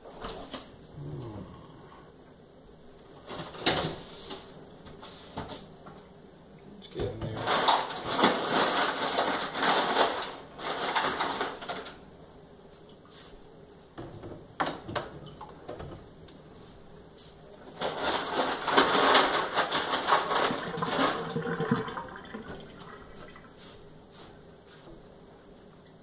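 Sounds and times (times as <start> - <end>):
ice rattling in a metal sink: 7.2 - 12.0, 17.7 - 23.3.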